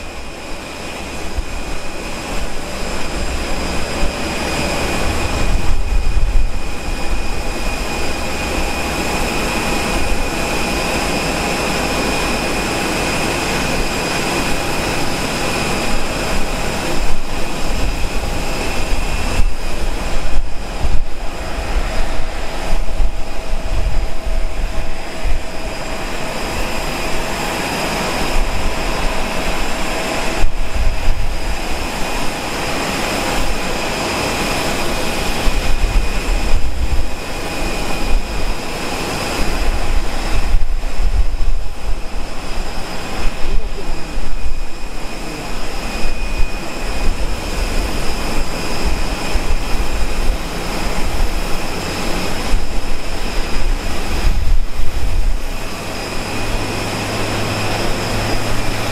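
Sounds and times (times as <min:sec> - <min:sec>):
low rumble: 0:00.0 - 0:10.9, 0:16.4 - 0:27.4
jet engines whining at idle: 0:00.0 - 0:58.9.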